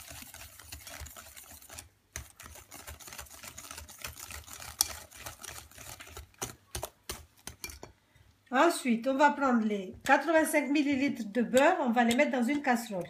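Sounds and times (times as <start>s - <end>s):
whisk clicking against bowl: 0.0s - 7.8s.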